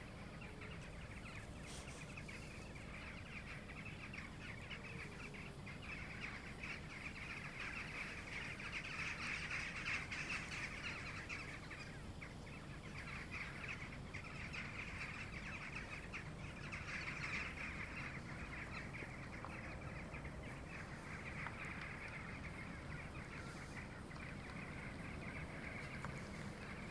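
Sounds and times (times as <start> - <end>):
flock of jackdaws calling: 0.0 - 26.9.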